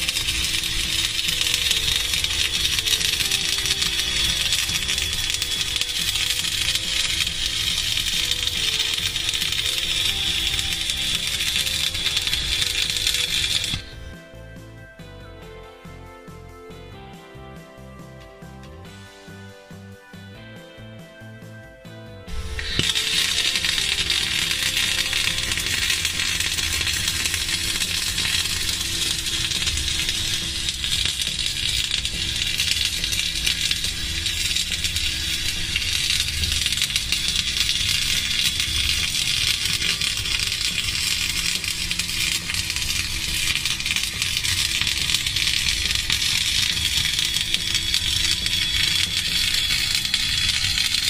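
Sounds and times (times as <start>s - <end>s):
welding arc crackling: 0.0s - 14.2s, 22.3s - 51.0s.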